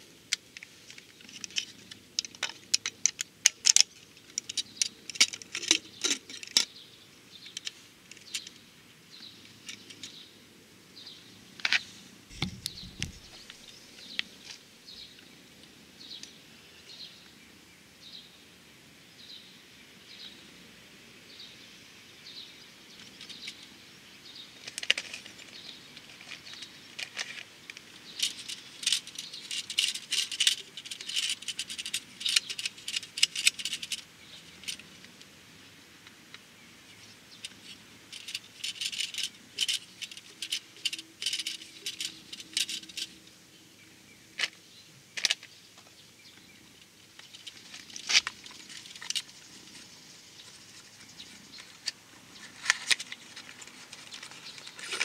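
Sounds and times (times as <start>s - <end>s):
small plastic clicks and rattles: 0.3s - 6.7s, 11.6s - 14.6s, 24.6s - 35.2s, 37.4s - 43.2s, 45.2s - 45.9s, 47.1s - 50.6s
bird chirping: 11.0s - 15.3s, 36.5s - 55.0s
dull bump: 12.3s - 13.5s.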